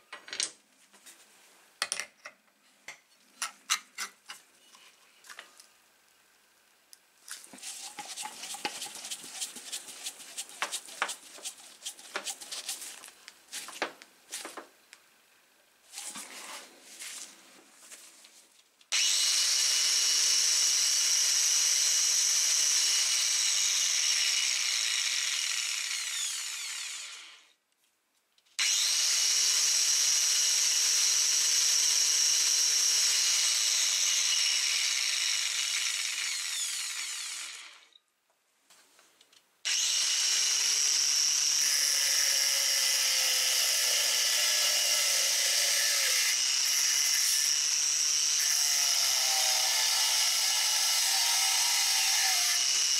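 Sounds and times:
angle grinder whining: 19.0 - 27.5, 28.6 - 38.0, 39.7 - 52.9.

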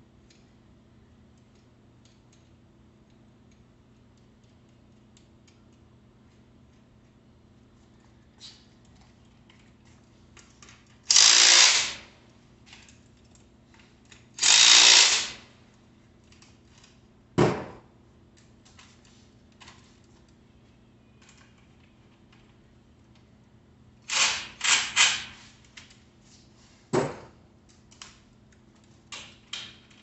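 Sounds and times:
cordless drill running: 11.1 - 12.1, 14.4 - 15.4.

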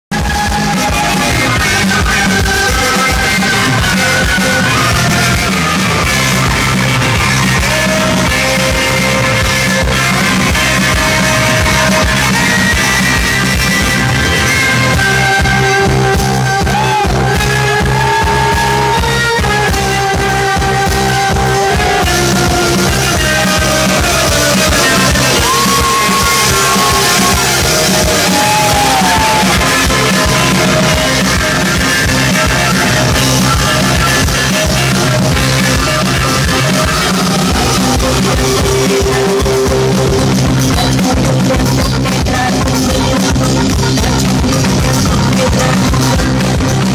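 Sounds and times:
drums: 0.0 - 46.9
electric bass: 0.0 - 46.9
saxophone: 0.1 - 46.9
wavering melody line: 10.9 - 40.0.

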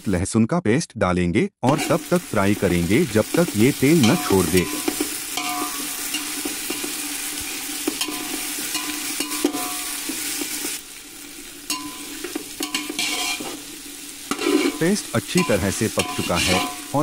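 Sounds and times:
food sizzling in oil: 1.7 - 17.0
spatula scraping a pan: 3.3 - 10.8, 11.7 - 17.0.

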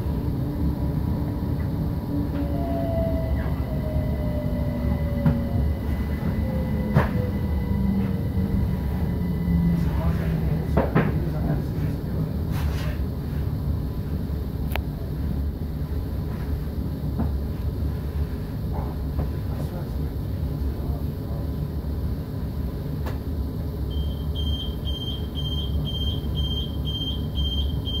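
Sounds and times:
train interior rumble: 0.0 - 28.0
door warning beeps: 23.9 - 28.0.

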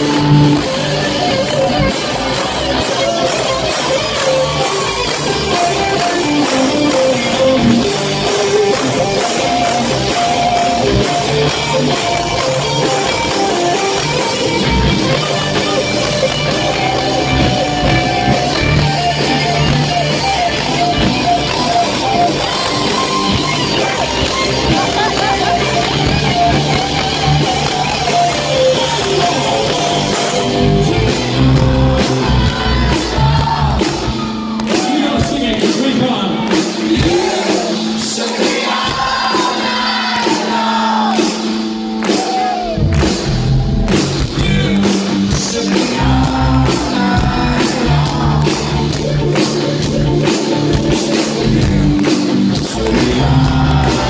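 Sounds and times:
drums: 0.0 - 54.0
electric guitars: 0.0 - 54.0
person singing: 23.4 - 34.1, 44.3 - 49.9, 50.9 - 54.0.

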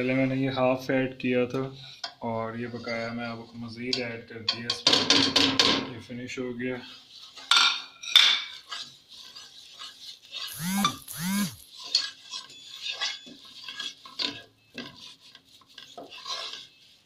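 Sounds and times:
spoon scraping saucepan: 8.4 - 11.0, 11.6 - 17.0.

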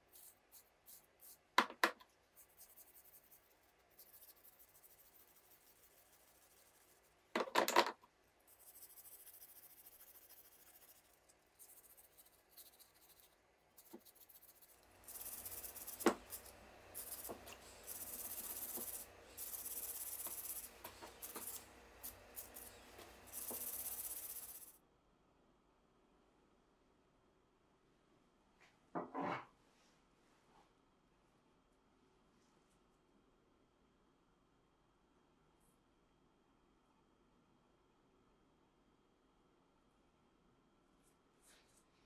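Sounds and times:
brush scrubbing metal: 2.2 - 7.2, 8.4 - 24.7.

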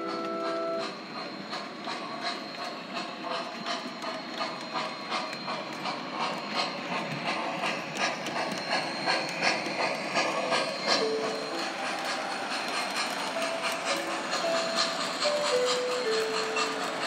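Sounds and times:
model train wheels clicking: 0.0 - 17.0.

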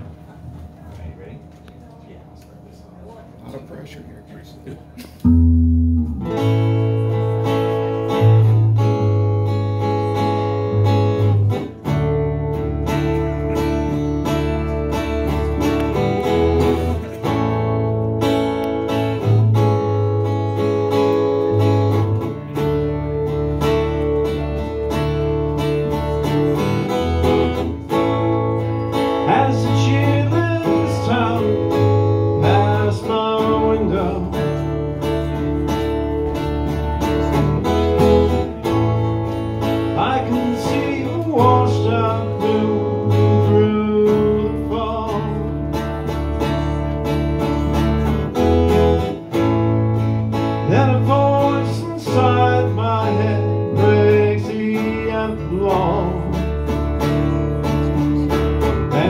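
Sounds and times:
strummed acoustic guitar: 4.8 - 59.0
electric bass: 5.0 - 59.0
man singing: 28.9 - 35.2, 39.7 - 46.0, 50.6 - 59.0.

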